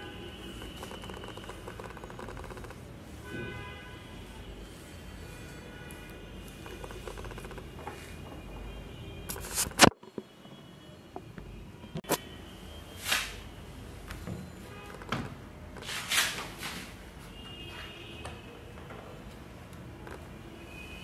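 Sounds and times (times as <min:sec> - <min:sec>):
laptop lid brushing: 0:00.3 - 0:02.8, 0:04.4 - 0:07.7.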